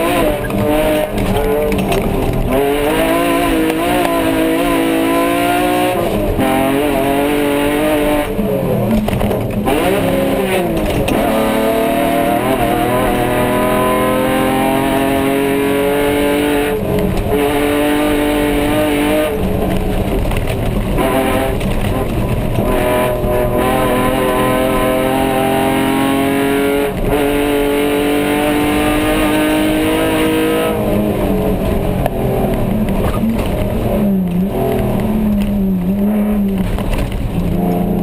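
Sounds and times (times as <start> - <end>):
tyre and gravel noise: 0.0 - 4.4, 19.4 - 23.5, 30.8 - 38.0
race car engine revving: 0.0 - 38.0.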